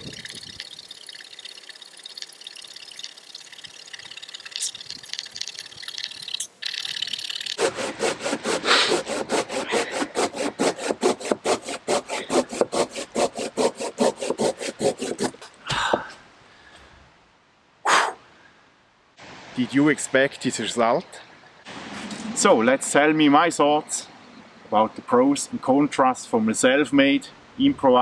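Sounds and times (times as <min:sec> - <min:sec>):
pull saw cutting log: 0:07.6 - 0:15.5.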